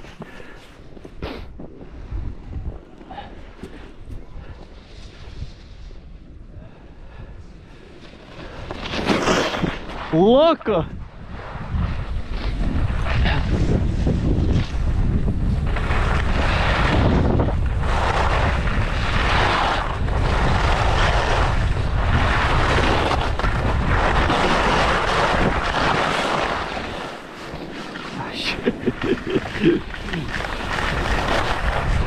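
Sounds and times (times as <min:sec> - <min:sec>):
skis scraping across snow: 0:00.0 - 0:06.2, 0:07.6 - 0:32.0
wind buffeting microphone: 0:01.4 - 0:08.6, 0:09.6 - 0:26.8, 0:28.2 - 0:32.0.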